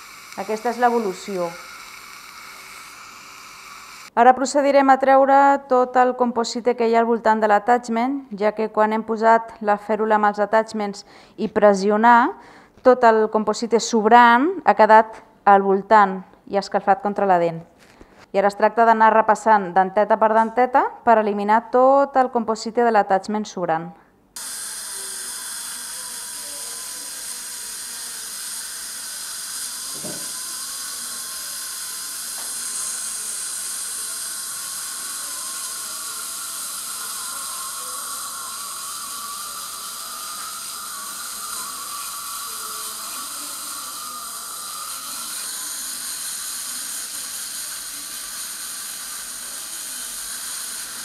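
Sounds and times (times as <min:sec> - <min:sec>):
dental drill whining: 0:00.0 - 0:04.2, 0:24.4 - 0:51.0.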